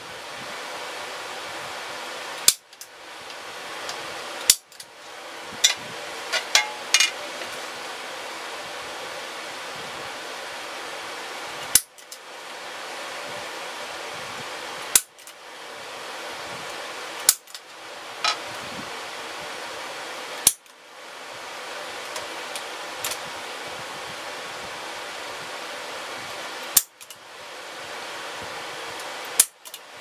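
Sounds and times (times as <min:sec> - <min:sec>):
steady background hiss: 0:00.0 - 0:30.0
center punch metallic snaps: 0:17.3 - 0:17.6, 0:26.7 - 0:27.1.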